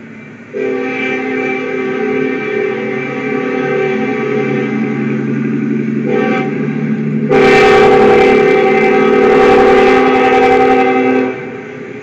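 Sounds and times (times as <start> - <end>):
locomotive air horn: 0.5 - 5.2, 6.0 - 11.9.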